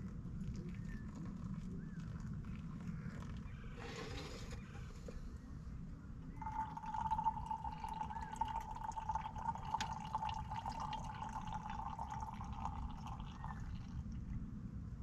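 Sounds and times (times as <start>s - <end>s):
small ticks and drips: 0.0s - 3.7s, 6.4s - 14.4s
coffee trickling into a mug: 3.0s - 5.2s, 6.4s - 14.2s.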